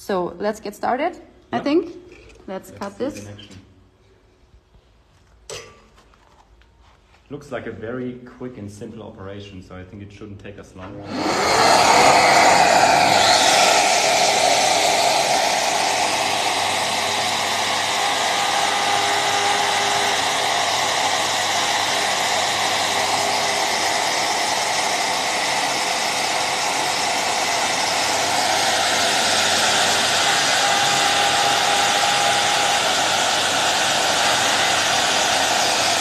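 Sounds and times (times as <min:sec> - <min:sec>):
router spindle whirring: 0:11.0 - 0:36.0.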